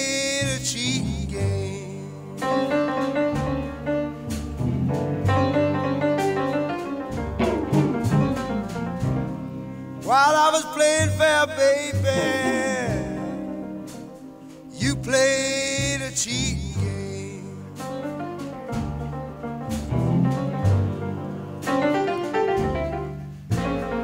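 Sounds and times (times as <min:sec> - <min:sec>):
slow song with singing: 0:00.0 - 0:03.3, 0:10.0 - 0:18.2.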